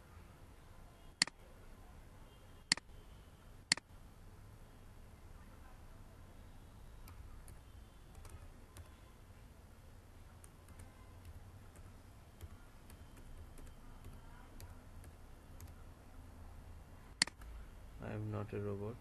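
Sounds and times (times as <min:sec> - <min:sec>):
keyboard typing: 0:07.0 - 0:09.0, 0:10.3 - 0:15.9, 0:17.2 - 0:17.6.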